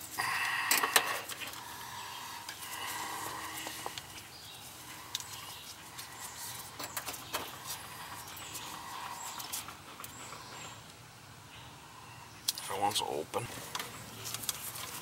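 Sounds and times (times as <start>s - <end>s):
faint outdoor background: 0.0s - 15.0s
clicks and rustles of test leads: 2.4s - 11.0s, 13.5s - 15.0s.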